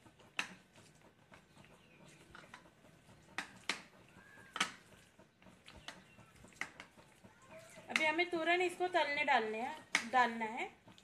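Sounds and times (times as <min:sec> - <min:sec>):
sharp wet smacks: 0:09.8 - 0:10.2.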